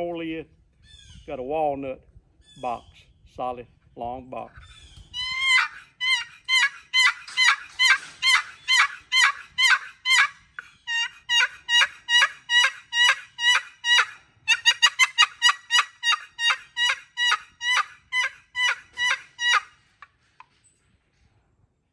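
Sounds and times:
turkey box call yelps: 4.6 - 19.8.

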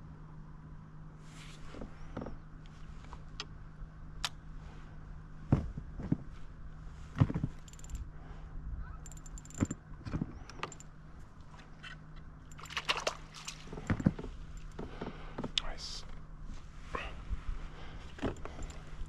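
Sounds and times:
steady low hum: 0.0 - 19.0
fishing rod and reel clicks: 7.6 - 8.0, 9.0 - 9.8, 10.5 - 10.9, 12.5 - 14.7
reel ticking: 7.6 - 8.0, 9.1 - 9.8.

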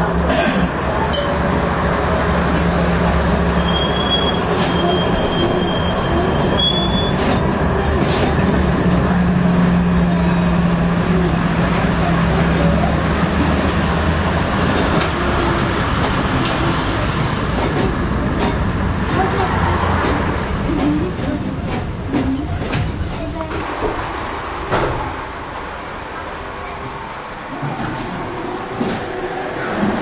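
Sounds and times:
tram rolling rumble: 0.0 - 30.0
high squeal: 3.6 - 7.7.

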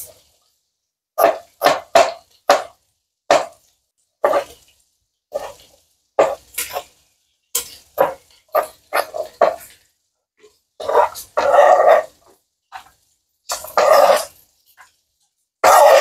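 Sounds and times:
knife chopping on plastic board: 1.2 - 3.6.

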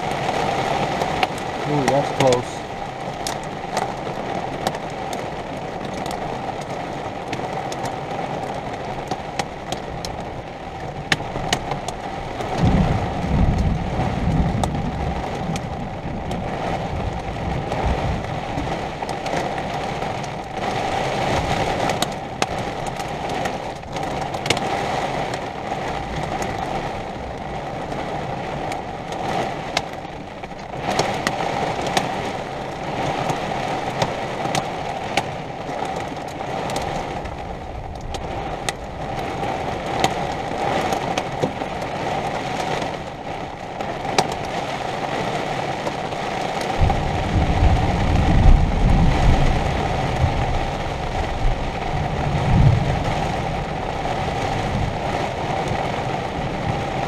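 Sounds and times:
raindrops ticking: 0.0 - 57.0
steady rain: 0.0 - 57.0
wind noise: 6.9 - 57.0
thunder rumble: 10.8 - 34.8, 46.6 - 57.0.

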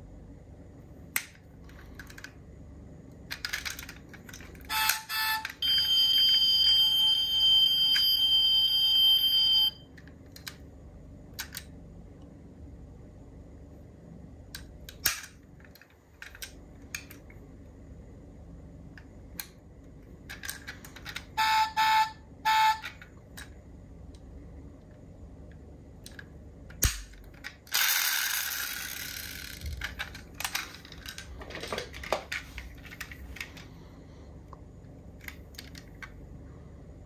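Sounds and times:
toy cars clicking and tapping: 1.2 - 2.4, 3.3 - 5.8, 14.6 - 17.3, 20.3 - 21.4, 26.0 - 33.6.

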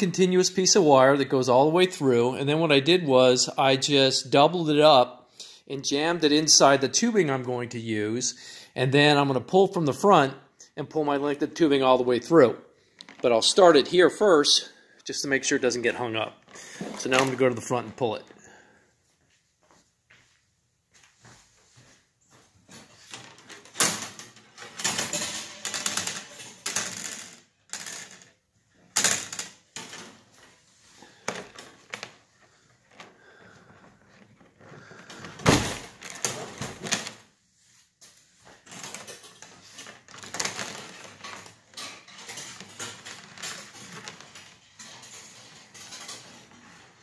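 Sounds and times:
scraping and rustling plastic: 16.0 - 18.3, 22.6 - 27.2, 38.2 - 47.0.

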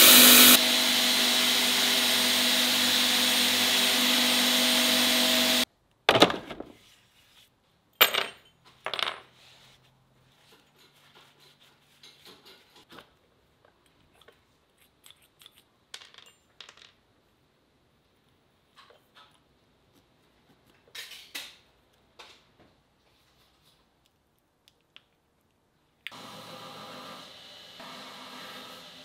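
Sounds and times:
belt grinder humming: 0.0 - 5.7.

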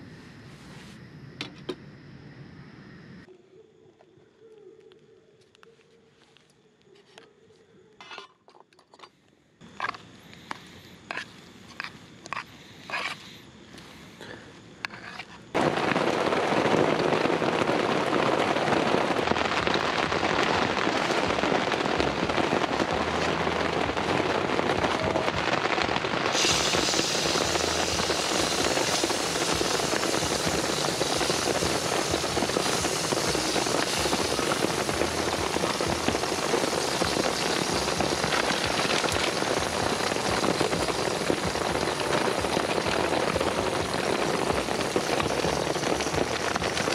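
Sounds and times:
egg sizzling in hot oil: 26.3 - 46.9.

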